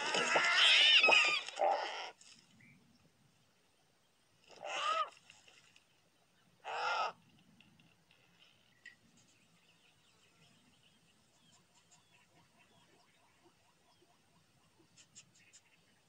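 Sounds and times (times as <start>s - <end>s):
cartoon vulture squawks: 6.6s - 7.2s.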